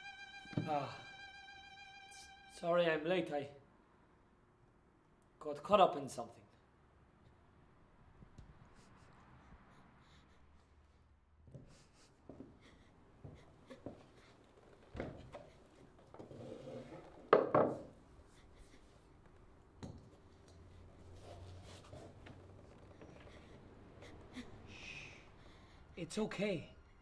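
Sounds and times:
knocks and rubbing on wood: 17.2 - 18.0.

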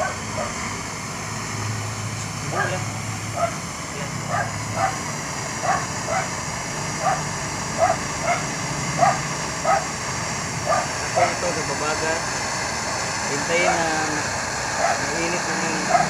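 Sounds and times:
dog barking: 0.0 - 0.6, 2.5 - 2.8, 3.4 - 3.6, 4.3 - 5.0, 5.6 - 6.4, 7.0 - 9.9, 10.6 - 11.4, 14.8 - 15.1, 15.8 - 16.0
torch flame hissing: 0.0 - 16.0.

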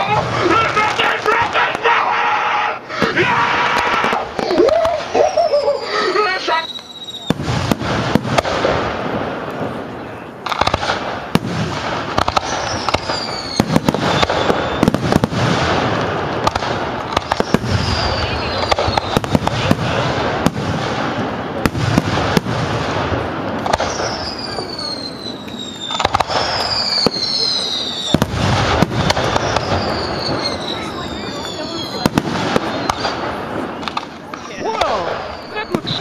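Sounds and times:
fireworks crackling: 0.0 - 36.0
falling firework whistles: 3.0 - 8.5, 12.2 - 15.8, 16.5 - 19.8, 23.6 - 36.0
firework shells bursting: 10.4 - 27.4.

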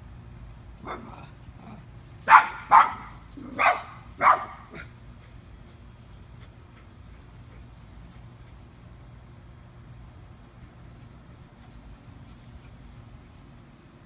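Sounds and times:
small dog barking: 0.8 - 1.2, 2.2 - 4.9.

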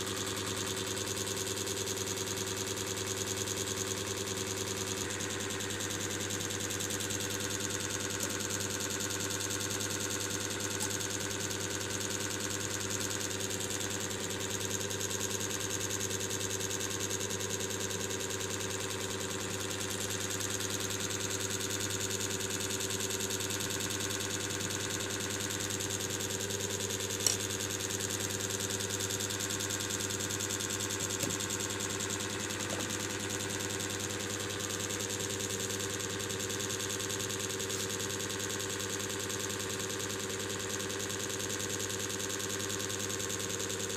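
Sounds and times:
machine hum: 5.0 - 9.2, 30.8 - 34.7
sharp click: 27.2 - 27.5.

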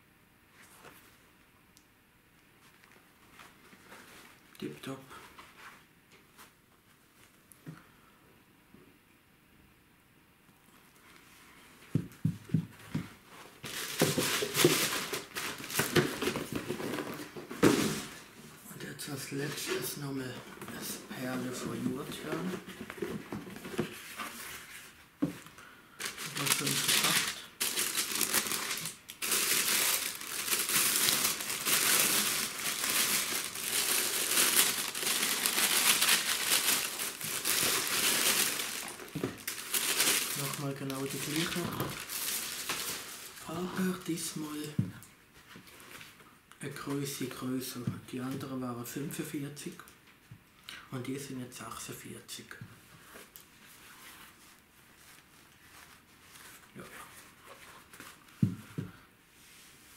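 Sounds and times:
tissue paper crinkling: 13.4 - 18.3, 26.0 - 44.6, 53.0 - 58.4.

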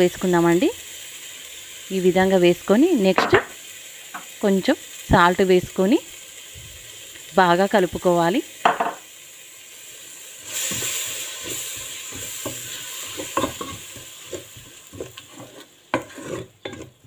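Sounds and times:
sauce sizzling: 0.0 - 17.0
spatula scraping and tapping pot: 10.6 - 17.0.

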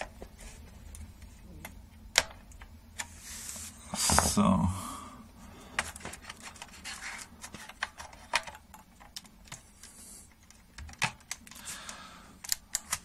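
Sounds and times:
hands handling cables and parts: 5.7 - 11.7, 12.4 - 13.0.

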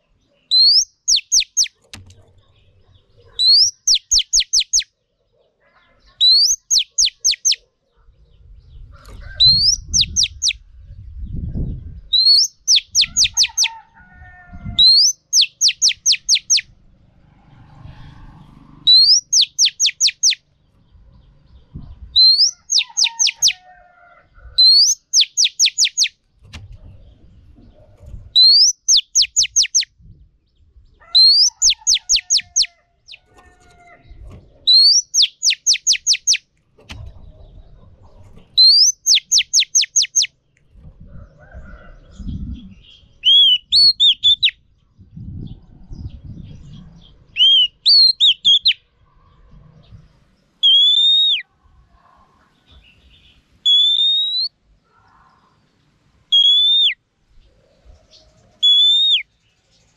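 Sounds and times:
magpie-robin singing: 0.4 - 4.9, 6.0 - 7.7, 9.4 - 10.6, 11.3 - 13.8, 14.7 - 16.7, 18.9 - 20.4, 22.1 - 23.6, 24.6 - 26.2, 28.3 - 29.9, 31.1 - 33.4, 34.6 - 36.5, 38.3 - 40.4, 42.4 - 44.7, 46.0 - 48.8, 50.6 - 51.4, 53.0 - 54.5, 56.3 - 57.0, 58.2 - 59.4.

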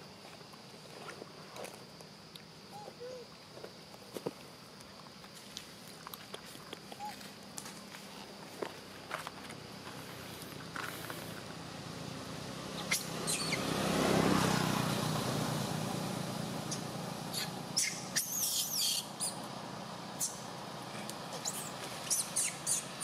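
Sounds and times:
motor vehicle passing: 8.6 - 23.0
birds chirping: 12.7 - 13.7, 16.6 - 19.5, 21.3 - 23.0.

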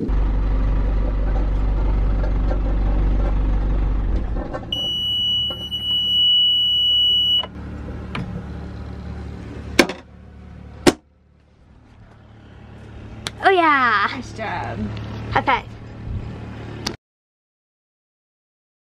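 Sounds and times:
diesel engine running: 0.0 - 17.0
alarm buzzer high beep: 4.7 - 7.5.

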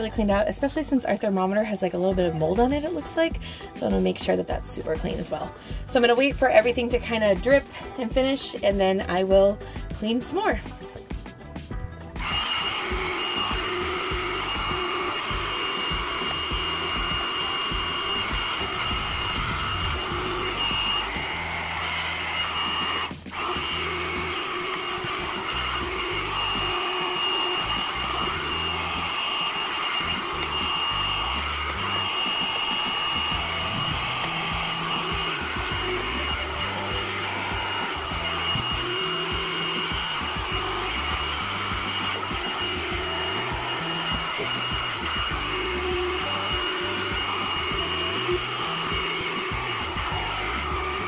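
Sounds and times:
hair dryer running: 0.0 - 11.1, 11.7 - 51.0.

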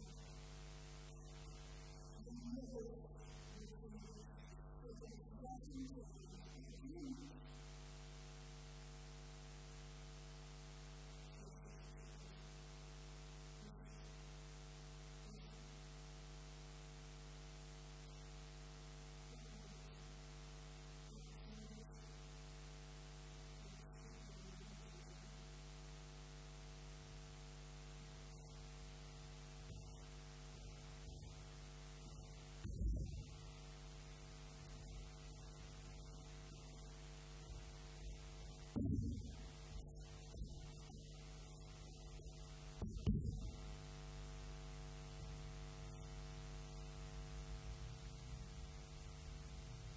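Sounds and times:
electrical mains hum: 0.0 - 49.9
brief thud: 38.8 - 39.3, 42.8 - 43.4.

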